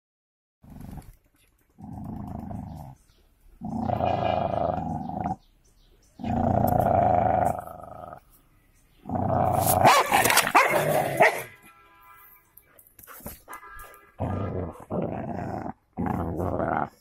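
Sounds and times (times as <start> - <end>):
dogs growling: 1.8 - 3.0, 3.6 - 5.5, 6.2 - 8.2, 9.0 - 11.3, 14.2 - 17.0
dogs snarling and barking: 6.2 - 8.2, 9.0 - 11.5, 14.2 - 17.0.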